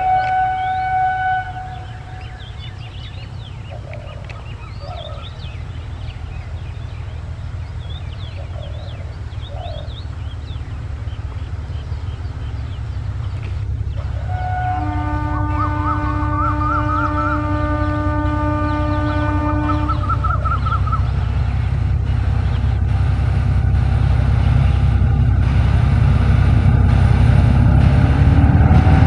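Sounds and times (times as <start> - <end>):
locomotive horn blast: 0.0 - 3.3, 13.9 - 29.0
birds chirping: 0.0 - 26.9
diesel engine rumbling: 0.0 - 29.0.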